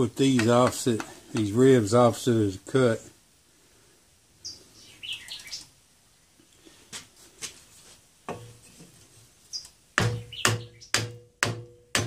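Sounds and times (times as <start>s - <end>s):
small bird chirping: 4.4s - 5.8s, 9.4s - 11.1s
sharp knocks: 10.0s - 12.0s.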